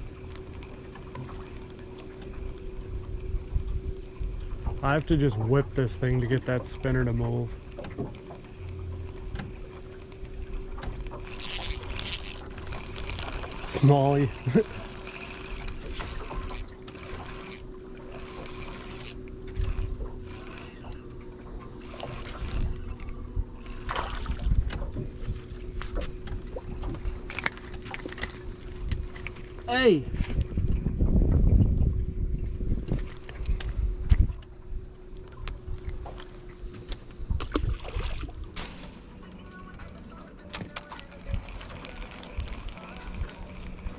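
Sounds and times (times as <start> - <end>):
reel clicks: 0.0 - 3.8, 6.0 - 25.0, 25.7 - 30.5, 32.9 - 34.5, 40.4 - 43.9
water and wind rumble: 0.0 - 43.9
fishing reel whirring: 8.5 - 24.4, 26.8 - 30.0, 41.1 - 43.9
fish splashing into water: 37.4 - 39.1.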